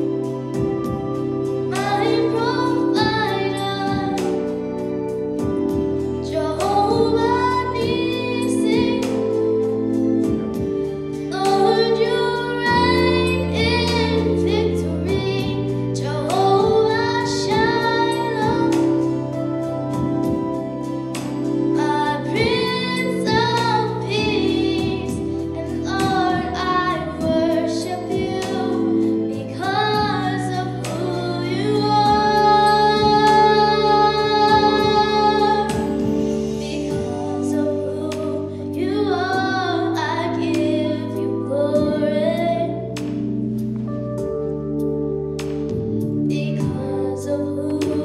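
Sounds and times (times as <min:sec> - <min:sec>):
sustained instrumental accompaniment: 0:00.0 - 0:48.0
girl singing into a microphone: 0:01.7 - 0:04.5, 0:06.2 - 0:09.5, 0:11.2 - 0:20.4, 0:21.7 - 0:43.0, 0:46.3 - 0:48.0.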